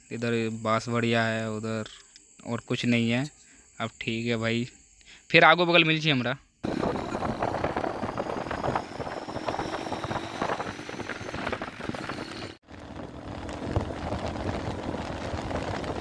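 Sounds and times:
faint engine hum: 0:06.6 - 0:16.0
motorcycle road noise: 0:06.6 - 0:16.0
wind rushing over microphone: 0:06.6 - 0:16.0.

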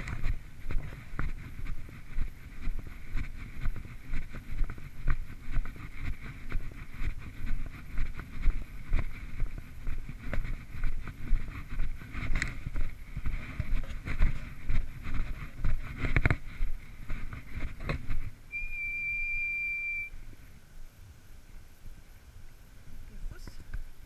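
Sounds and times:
footsteps on dirt track: 0:00.0 - 0:20.4
wind on microphone: 0:00.0 - 0:20.6
camera handling rumble: 0:09.0 - 0:18.4.

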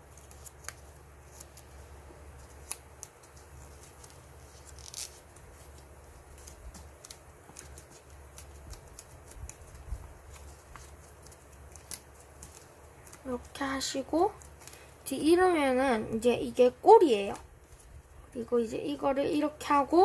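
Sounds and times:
paper being folded: 0:00.0 - 0:15.5, 0:16.6 - 0:20.0.

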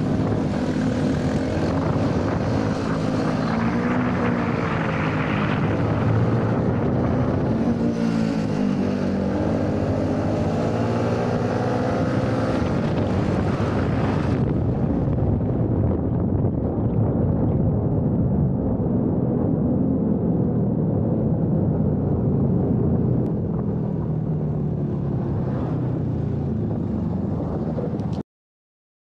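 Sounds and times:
motorcycle engine running: 0:00.0 - 0:14.8
wind rushing over microphone: 0:00.0 - 0:28.2.

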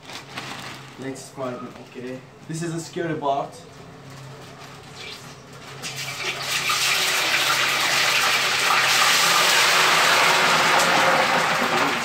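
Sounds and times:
food frying in hot oil: 0:05.0 - 0:12.0.

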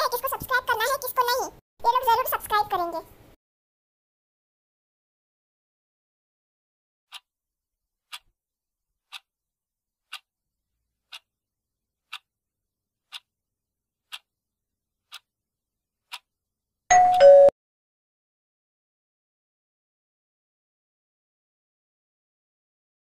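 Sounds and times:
clock ticks: 0:07.1 - 0:07.3, 0:08.1 - 0:08.3, 0:09.1 - 0:09.3, 0:10.1 - 0:10.3, 0:11.1 - 0:11.3, 0:12.1 - 0:12.3, 0:13.1 - 0:13.3, 0:14.1 - 0:14.3, 0:15.0 - 0:15.3, 0:16.0 - 0:16.3.

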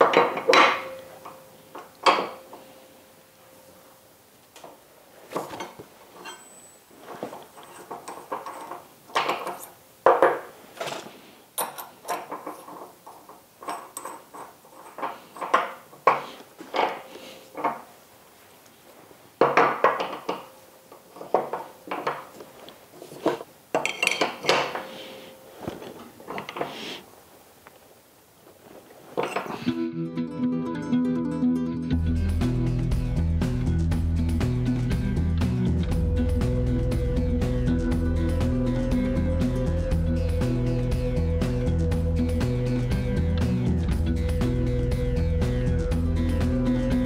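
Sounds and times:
wrench clanking on steel: 0:00.0 - 0:02.6, 0:05.3 - 0:11.0, 0:11.6 - 0:17.9, 0:19.4 - 0:22.4, 0:23.7 - 0:25.2, 0:29.2 - 0:29.7.

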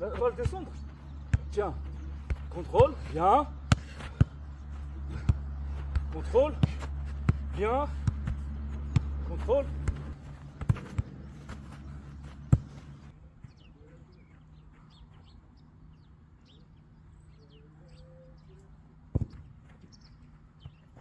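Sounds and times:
small birds chirping: 0:00.0 - 0:21.0
football kicked with dull thud: 0:03.6 - 0:04.4, 0:05.1 - 0:11.7, 0:12.3 - 0:12.8, 0:19.1 - 0:19.5.

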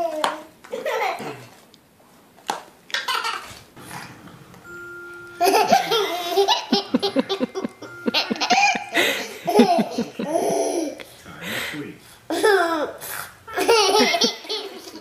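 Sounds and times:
brief steady tone: 0:03.8 - 0:10.0
toddler laughing hard: 0:12.3 - 0:15.0.

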